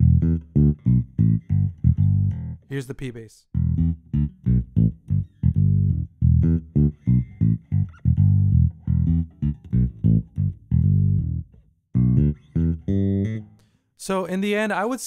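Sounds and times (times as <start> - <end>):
plucked bass notes: 0.0 - 2.7, 3.5 - 13.6.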